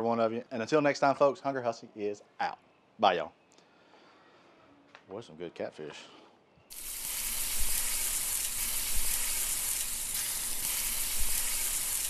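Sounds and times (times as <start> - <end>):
food sizzling on a griddle: 6.7 - 12.0.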